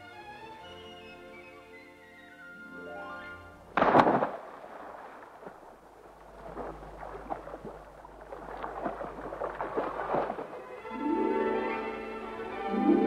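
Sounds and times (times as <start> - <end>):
loud splash into water: 3.8 - 10.7
splashing and bubbling water: 3.8 - 11.7.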